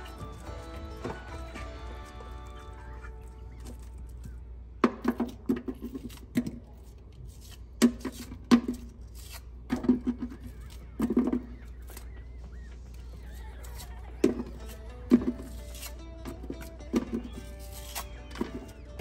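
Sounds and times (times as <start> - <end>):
onion layers snapping: 3.6 - 12.1, 13.6 - 19.0.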